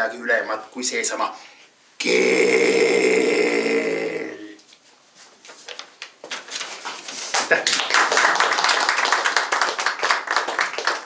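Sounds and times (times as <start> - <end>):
audience applauding: 7.3 - 11.0.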